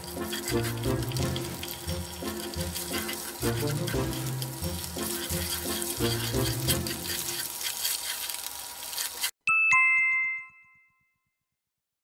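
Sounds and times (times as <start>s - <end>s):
bacon sizzling in a frying pan: 0.0s - 9.4s
chopsticks stirring in pan: 0.0s - 9.4s.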